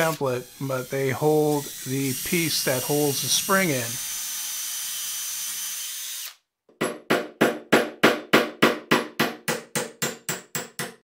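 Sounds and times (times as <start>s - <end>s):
electric drill boring steel: 0.0s - 6.4s.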